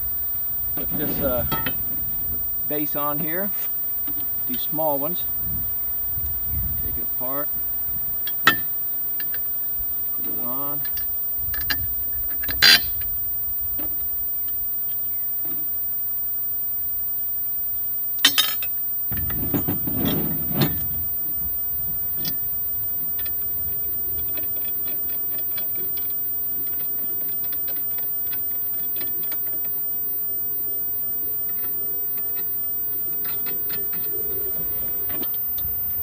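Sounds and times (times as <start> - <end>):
metal knocking and scraping: 0.8 - 1.9, 8.3 - 9.4, 10.8 - 12.9, 18.2 - 21.0
sharp metal clanks: 8.3 - 9.4, 18.2 - 18.7.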